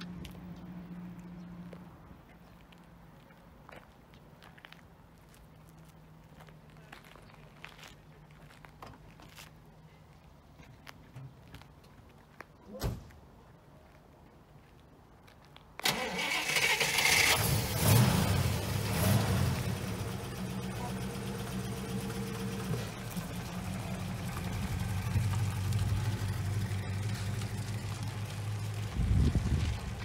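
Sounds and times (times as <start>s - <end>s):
starter cranking engine: 15.8s - 17.7s
car engine revving and idling: 17.0s - 30.0s.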